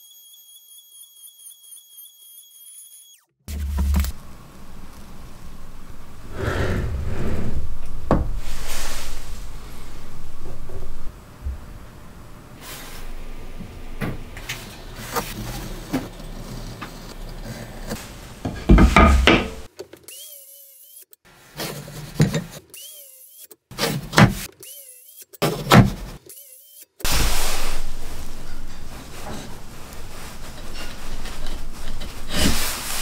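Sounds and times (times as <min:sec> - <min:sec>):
tools knocking on wooden workbench: 0:18.4 - 0:19.7.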